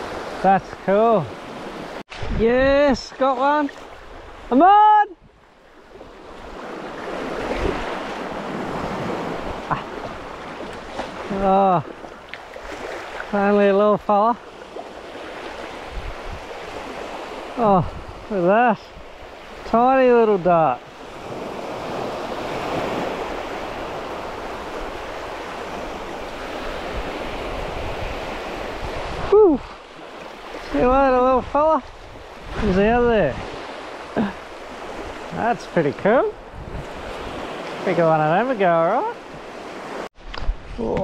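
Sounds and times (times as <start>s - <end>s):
wave breaking and washing in: 0.0s - 41.0s.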